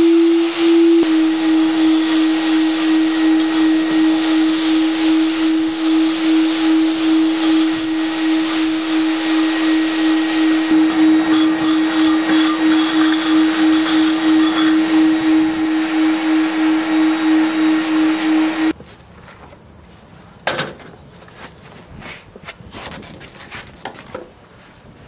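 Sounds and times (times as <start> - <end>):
industrial vacuum cleaner running: 0.0 - 18.8.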